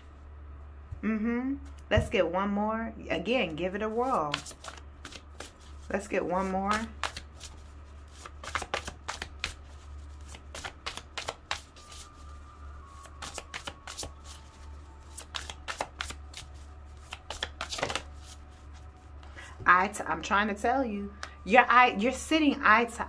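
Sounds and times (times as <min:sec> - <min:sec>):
steady low hum: 0:00.0 - 0:23.0
cards being shuffled: 0:04.1 - 0:12.4, 0:13.1 - 0:19.0.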